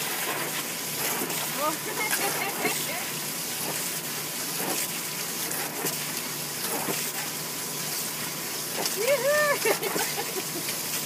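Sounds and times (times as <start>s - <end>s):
hose spraying water into pool: 0.0s - 11.0s.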